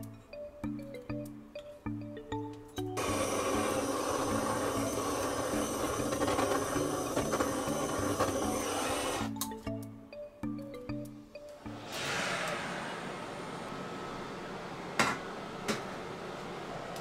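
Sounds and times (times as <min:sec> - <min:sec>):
background music: 0:00.0 - 0:12.2
blowtorch hissing: 0:03.0 - 0:09.3.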